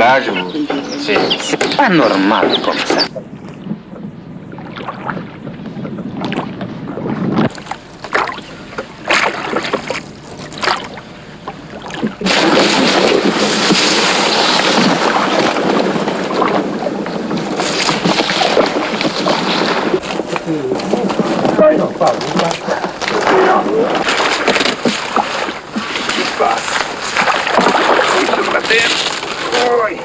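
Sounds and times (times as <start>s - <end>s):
oar splashes and knocks: 22.2s - 29.6s.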